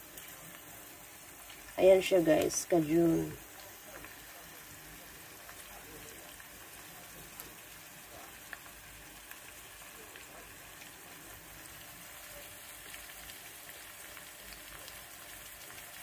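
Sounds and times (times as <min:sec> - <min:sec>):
food sizzling in oil: 0:00.0 - 0:16.0.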